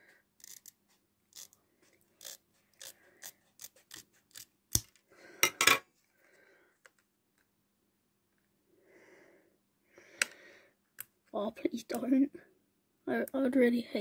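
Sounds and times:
scissors snipping plastic: 2.2s - 5.0s.

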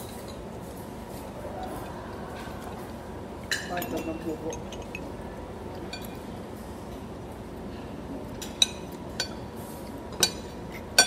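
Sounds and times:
metal spoon clinking on dishes: 3.5s - 5.1s.

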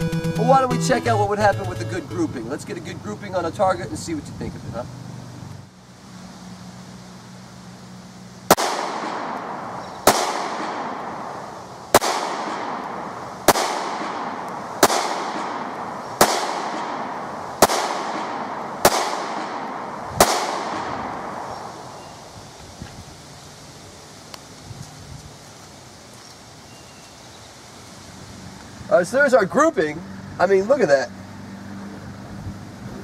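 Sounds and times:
pistol shots with echo: 8.5s - 22.2s.

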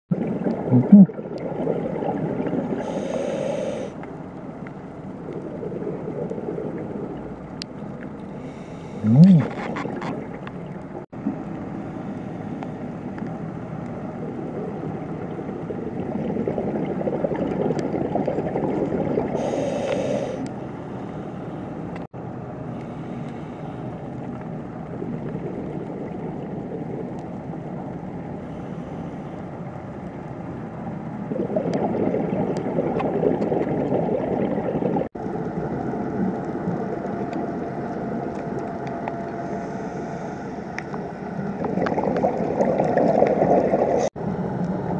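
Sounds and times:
muffled underwater bubbling: 0.1s - 4.0s, 5.1s - 11.3s, 14.2s - 20.4s, 31.2s - 38.4s, 41.3s - 44.1s.

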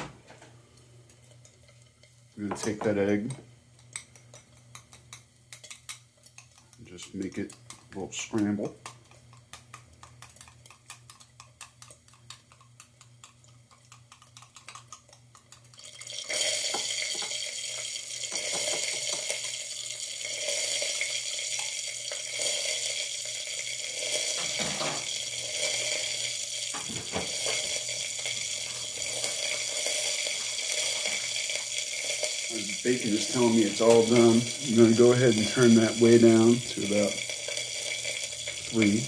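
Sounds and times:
whisk clicking on glass bowl: 3.8s - 15.8s
loud steady hiss: 23.8s - 39.0s.

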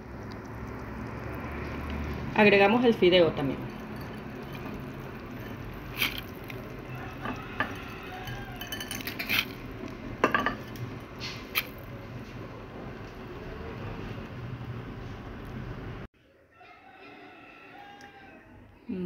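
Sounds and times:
wooden stick scraping metal pot: 3.0s - 12.0s.

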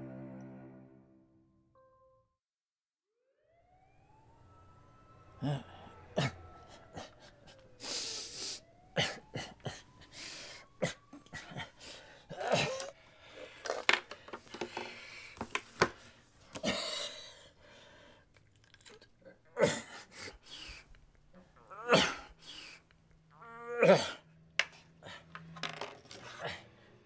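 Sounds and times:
distant siren wailing: 3.2s - 13.3s, 19.5s - 24.5s
man coughing: 9.0s - 9.9s, 10.8s - 11.7s, 12.3s - 12.9s
clicks and knocks of handled objects: 13.6s - 16.6s, 24.6s - 26.3s.

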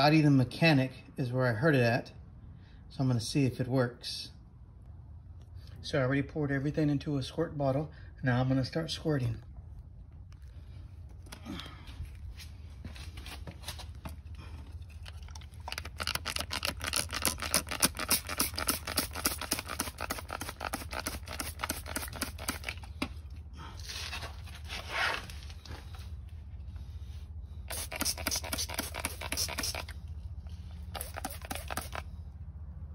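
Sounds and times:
steady low hum: 0.1s - 32.9s
spray bottle spurts: 14.9s - 23.2s, 27.6s - 32.2s.

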